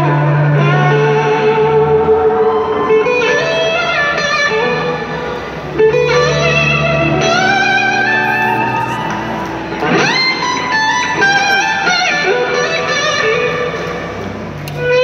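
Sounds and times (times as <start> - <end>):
blues-rock band playing: 0.0 - 15.0
electric guitar bending notes: 0.0 - 15.0.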